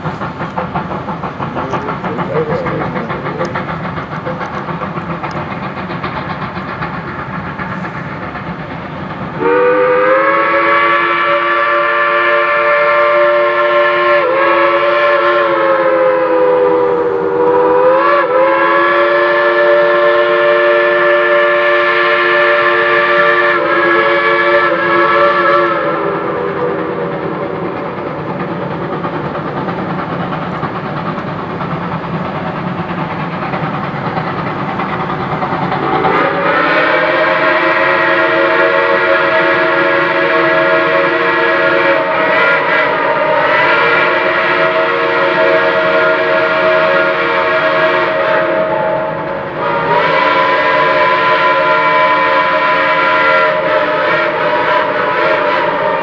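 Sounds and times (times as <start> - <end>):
steam whistle blasts: 9.4 - 27.2, 35.8 - 56.0
steady rushing noise: 25.8 - 38.0.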